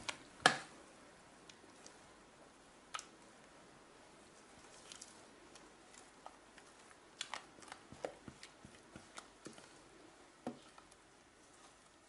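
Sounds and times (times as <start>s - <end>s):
cream squelching: 4.3s - 12.0s.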